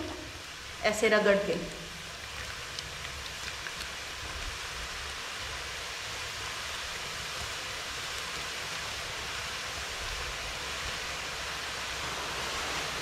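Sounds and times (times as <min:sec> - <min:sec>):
hot oil sizzling: 0:00.0 - 0:00.9
batter frying in oil: 0:01.8 - 0:13.0.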